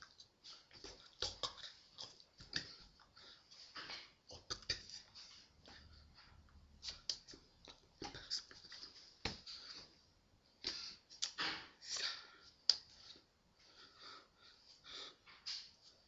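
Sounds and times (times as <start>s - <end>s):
puffs of breath: 11.8s - 15.7s.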